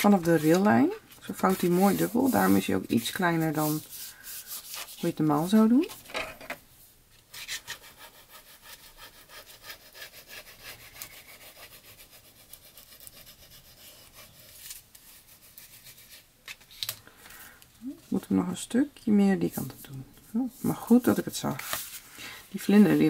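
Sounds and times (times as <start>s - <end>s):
bone folder scraping paper: 1.4s - 5.6s.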